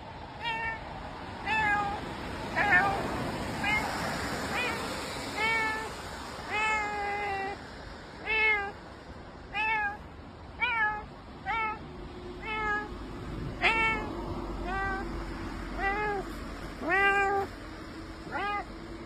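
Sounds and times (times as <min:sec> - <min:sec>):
cat meowing: 0:00.4 - 0:07.6, 0:08.2 - 0:08.8, 0:09.5 - 0:10.0, 0:10.6 - 0:11.8, 0:12.4 - 0:17.5, 0:18.3 - 0:18.7.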